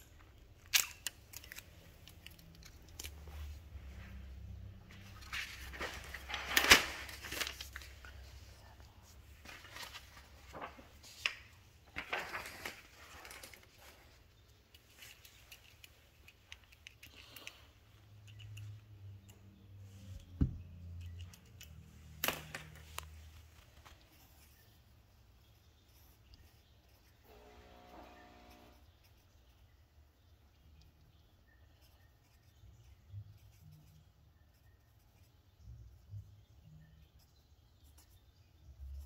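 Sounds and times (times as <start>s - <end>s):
paper rustling and crinkling: 4.8s - 17.6s, 22.1s - 24.7s.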